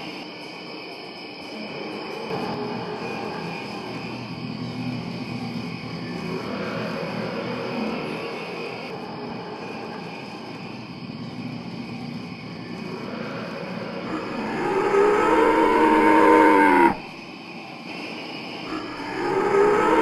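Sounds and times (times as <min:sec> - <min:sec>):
dinosaur roar: 0:14.0 - 0:17.0, 0:18.7 - 0:20.0.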